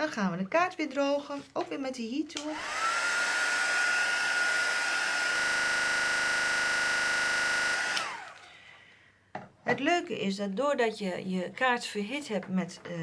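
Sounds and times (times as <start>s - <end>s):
heat tool fan whine: 2.5s - 8.5s.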